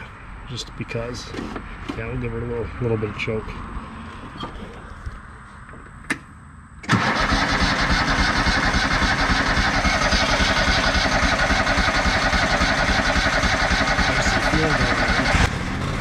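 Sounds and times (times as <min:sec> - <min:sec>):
mower engine running: 0:06.9 - 0:16.0.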